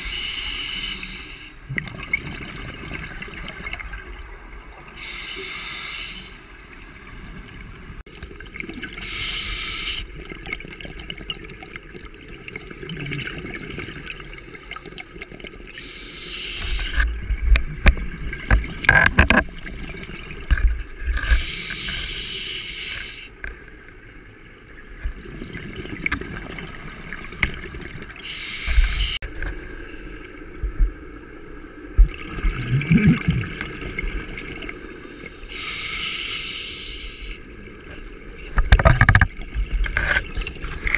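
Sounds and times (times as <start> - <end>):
regulator breathing hiss and bubbles: 0.0 - 2.1, 4.9 - 7.3, 8.2 - 10.2, 12.6 - 17.6, 19.4 - 23.4, 26.6 - 30.2, 32.5 - 38.0.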